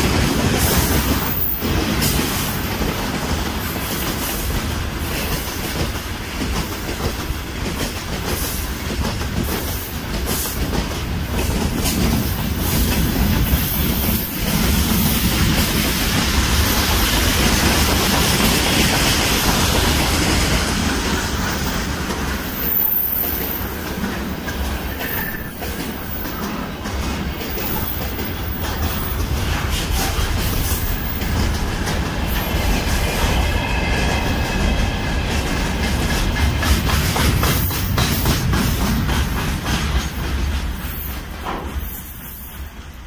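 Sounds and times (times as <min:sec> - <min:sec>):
train wheels rumbling on rails: 0:00.0 - 0:43.0.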